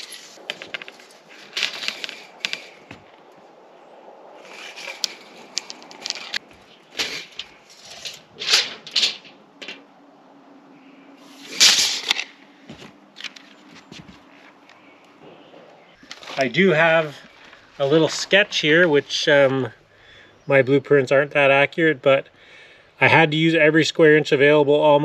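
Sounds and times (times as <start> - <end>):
tape measure clicking and rattling: 4.5 - 6.4, 7.0 - 9.8, 11.6 - 12.3.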